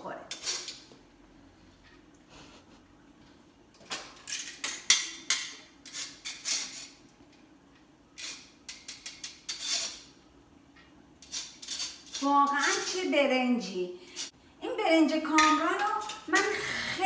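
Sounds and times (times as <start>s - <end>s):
spatula scraping a mesh strainer: 8.2s - 10.1s, 11.2s - 13.1s.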